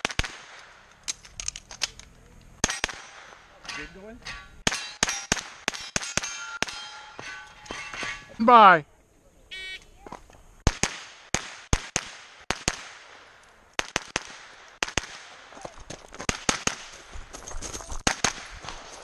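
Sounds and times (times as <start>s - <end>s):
rapid gunshots: 4.6s - 6.8s, 10.6s - 13.2s, 13.8s - 15.6s, 16.2s - 17.0s.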